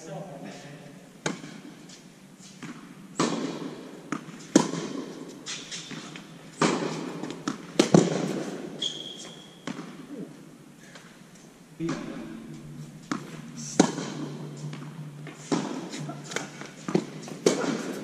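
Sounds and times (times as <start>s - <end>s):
tennis ball bouncing on court: 1.2s - 1.7s, 2.6s - 8.6s, 9.6s - 10.0s, 13.0s - 18.0s
tennis ball hit by racket: 1.2s - 1.7s, 2.6s - 8.7s, 9.6s - 10.0s, 13.0s - 18.0s
shoe squeak: 8.8s - 9.6s.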